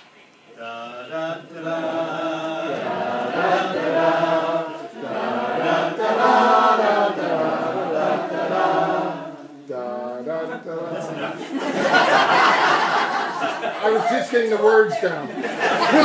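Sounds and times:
group singing together: 0:00.6 - 0:13.9.

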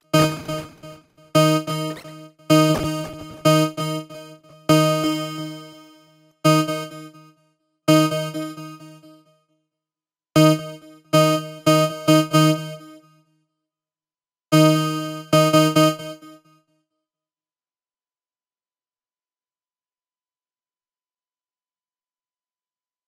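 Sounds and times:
synthesizer notes: 0:00.0 - 0:05.7.

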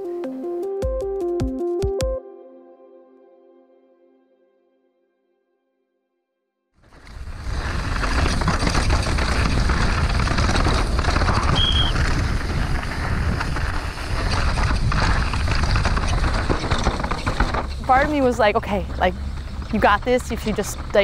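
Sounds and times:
rushing noise with low rumble: 0:06.8 - 0:21.0.

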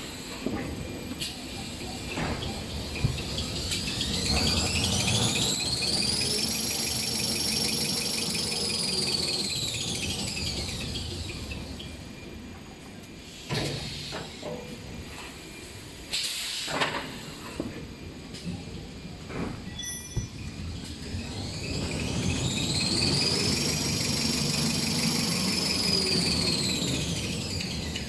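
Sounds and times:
paper making machine whine: 0:02.4 - 0:12.3, 0:20.6 - 0:28.0.

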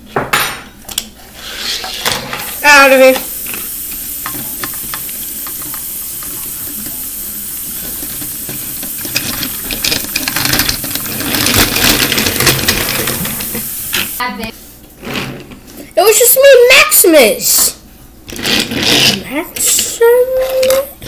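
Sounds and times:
steady hiss: 0:01.4 - 0:14.6
plastic toy trains clicking and rattling: 0:07.8 - 0:14.2, 0:18.3 - 0:21.0.

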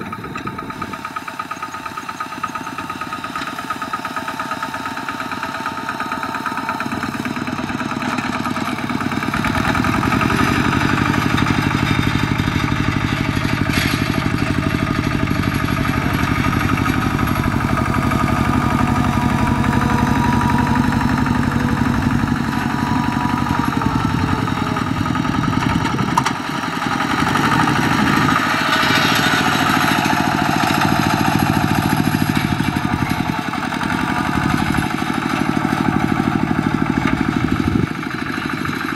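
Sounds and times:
diesel engine chugging: 0:00.0 - 0:38.9.

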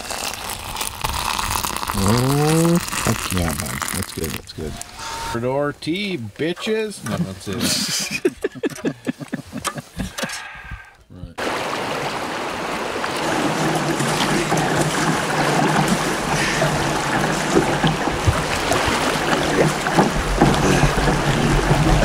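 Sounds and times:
river water rushing: 0:11.4 - 0:22.0
scattered knocks: 0:13.3 - 0:22.0.

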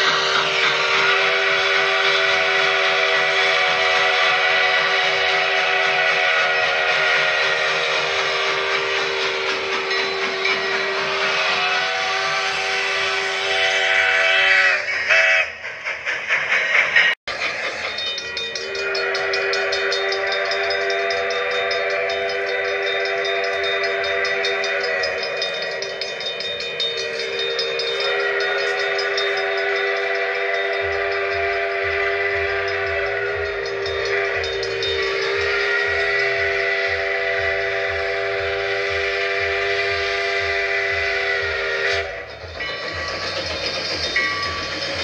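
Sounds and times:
steam locomotive chime whistle: 0:00.0 - 0:45.0.

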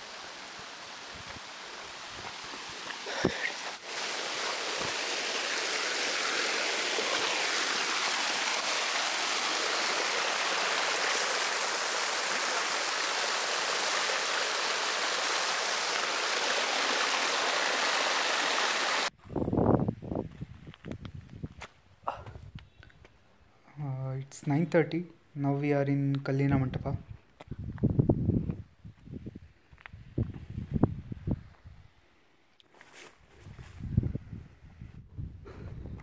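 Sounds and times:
stream running over rocks: 0:00.0 - 0:19.1.

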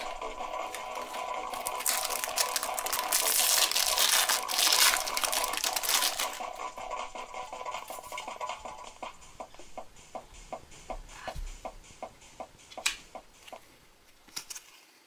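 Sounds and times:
foil pack crinkling and tearing: 0:00.6 - 0:06.4.

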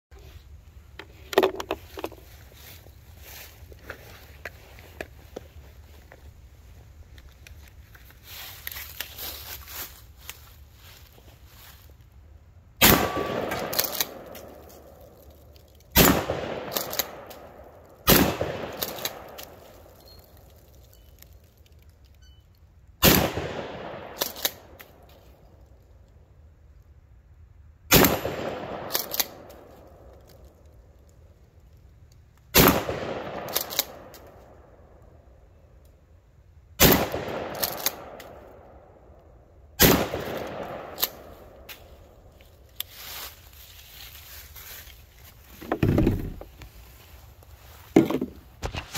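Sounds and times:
shotgun firing: 0:12.8 - 0:14.3, 0:16.0 - 0:17.3, 0:18.1 - 0:19.3, 0:23.0 - 0:24.2, 0:27.9 - 0:29.5, 0:32.6 - 0:34.1, 0:36.8 - 0:38.2, 0:39.8 - 0:41.3.

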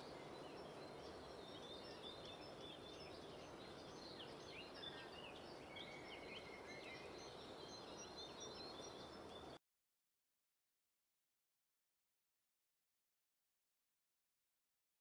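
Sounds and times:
low background noise: 0:00.0 - 0:09.6.

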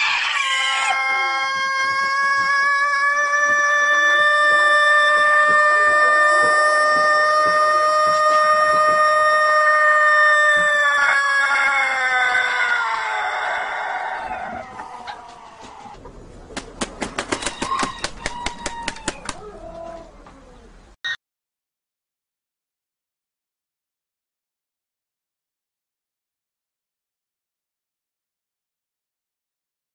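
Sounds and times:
rooster crowing: 0:00.0 - 0:16.0, 0:17.3 - 0:20.1.

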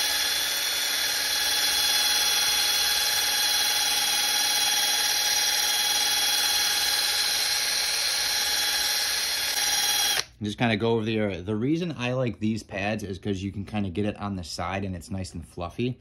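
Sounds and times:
drill spinning buffing pad: 0:00.0 - 0:10.3.

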